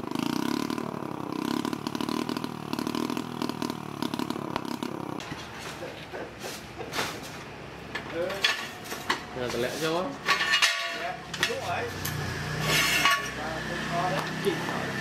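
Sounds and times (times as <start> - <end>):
metal tools clinking: 8.0 - 9.3, 10.2 - 13.4.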